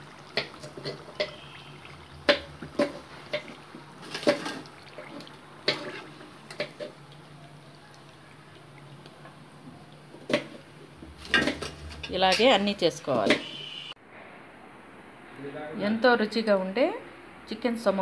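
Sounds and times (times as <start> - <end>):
oil sizzling: 0.0 - 14.0
metal skimmer clinking on pan: 0.4 - 1.6.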